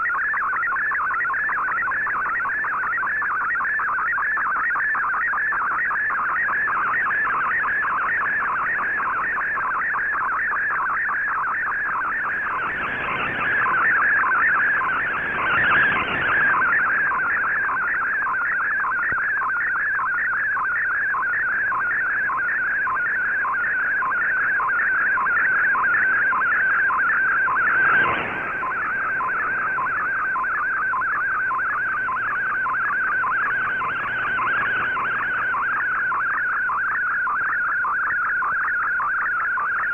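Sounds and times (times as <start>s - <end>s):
warbling data tone: 0.0s - 39.9s
radio static: 6.1s - 39.2s
radio band hiss: 11.8s - 19.3s, 21.5s - 36.6s.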